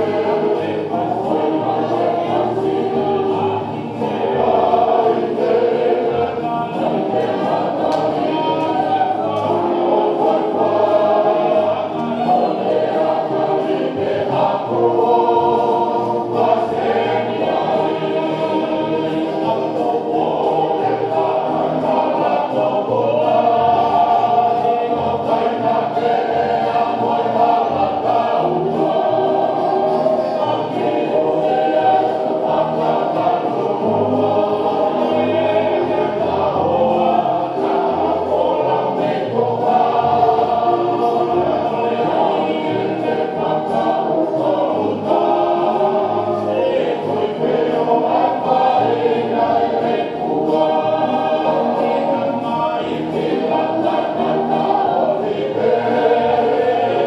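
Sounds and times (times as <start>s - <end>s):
group singing in chorus: 0.0s - 57.0s
string band with violin: 0.0s - 57.0s.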